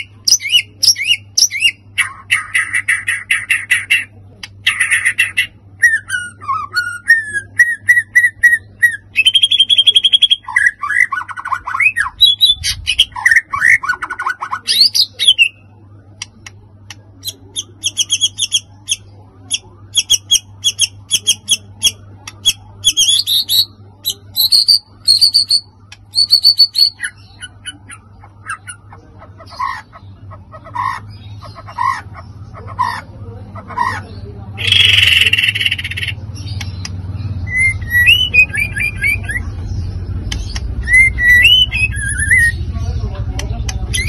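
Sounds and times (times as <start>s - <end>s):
bird singing: 0.0s - 44.0s.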